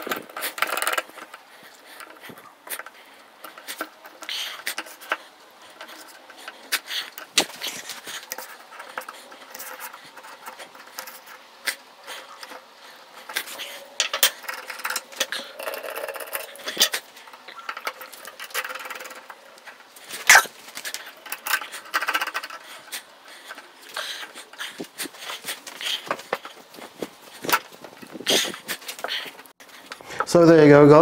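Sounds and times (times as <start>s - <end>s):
metal stands clamped to wooden table: 12.3s - 22.6s.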